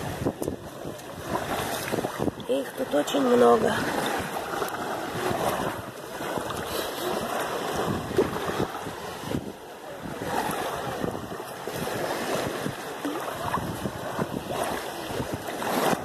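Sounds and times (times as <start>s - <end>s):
seawater sloshing and lapping: 0.0s - 16.0s.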